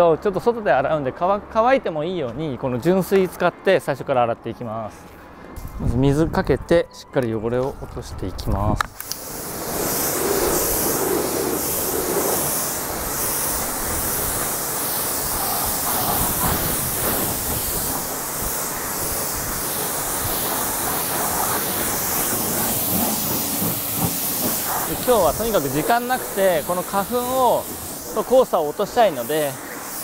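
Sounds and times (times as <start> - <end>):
hose water spray hissing: 9.0 - 30.0.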